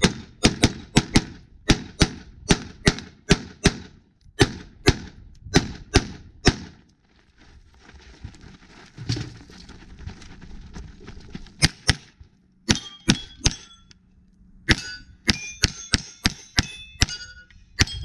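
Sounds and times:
pistol shots: 0:00.0 - 0:06.7
steel plate ringing: 0:12.7 - 0:14.0, 0:14.7 - 0:18.0.

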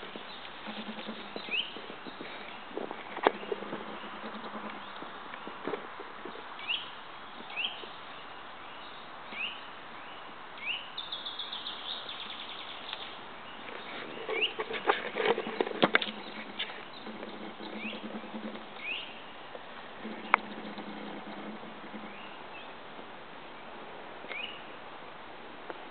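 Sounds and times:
rustling in dry leaf litter: 0:00.0 - 0:24.8
small birds chirping: 0:00.0 - 0:24.8.

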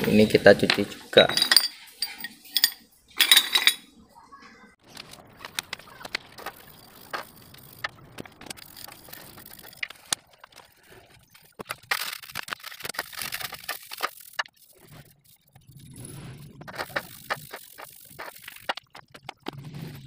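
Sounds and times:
metal part knocking in basin: 0:00.7 - 0:03.8.

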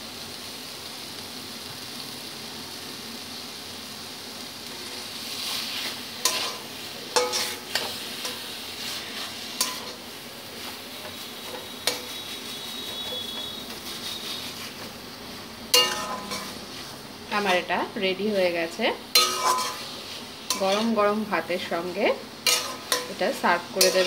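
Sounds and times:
soft sizzle: 0:00.0 - 0:24.0
metal spatula scraping pan: 0:04.7 - 0:15.0, 0:15.7 - 0:17.8, 0:19.1 - 0:21.5, 0:22.4 - 0:24.0.

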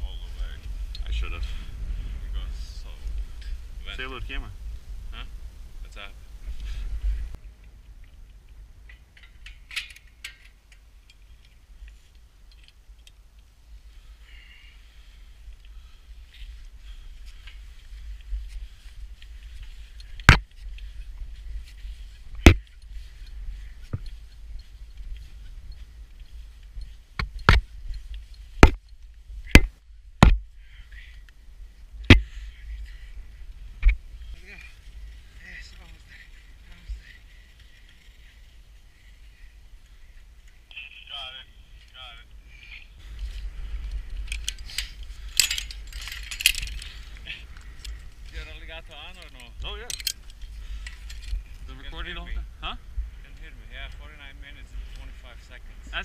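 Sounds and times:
wind rumble on microphone: 0:00.0 - 0:40.4, 0:42.4 - 0:56.0
metal hardware clinking on tower: 0:08.8 - 0:11.6, 0:44.1 - 0:47.1, 0:49.2 - 0:51.6.

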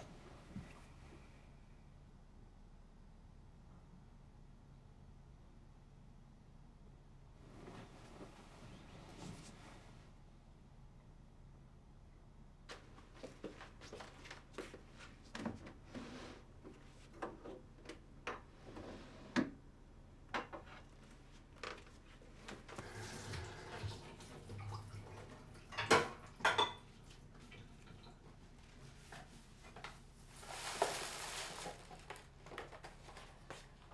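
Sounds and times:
dishes clattering: 0:23.4 - 0:27.0
dishes and cutlery clinking: 0:24.6 - 0:27.0.

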